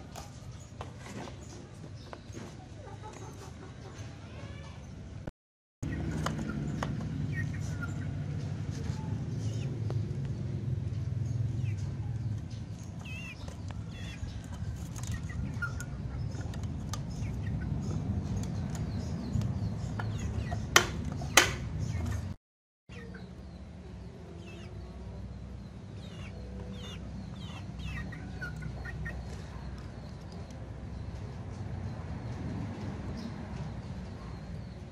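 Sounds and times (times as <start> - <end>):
chicken clucking softly: 2.4 - 4.8.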